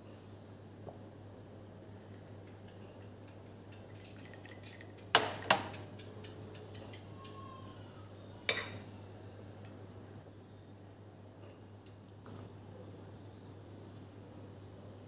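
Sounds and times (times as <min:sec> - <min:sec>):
faint low hum: 0:00.0 - 0:15.0
ceramic tableware clinks: 0:08.5 - 0:08.8.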